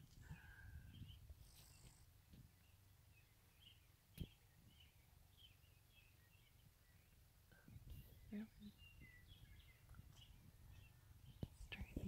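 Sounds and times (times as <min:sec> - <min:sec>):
distant bird chirps: 0:00.0 - 0:12.0.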